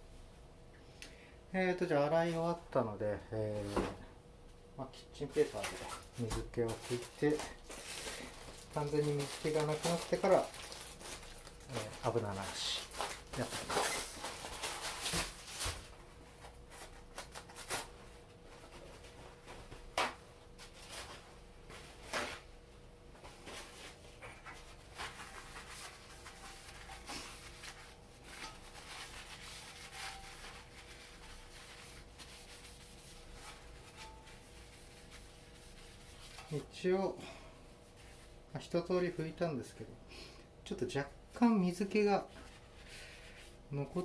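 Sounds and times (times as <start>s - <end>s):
paper wiping a metal pan: 8.2s - 10.5s, 23.4s - 37.1s, 37.8s - 39.3s.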